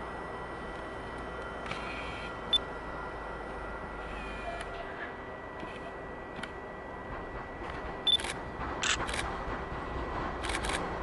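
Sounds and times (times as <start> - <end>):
camera autofocus beep: 8.1 - 9.0.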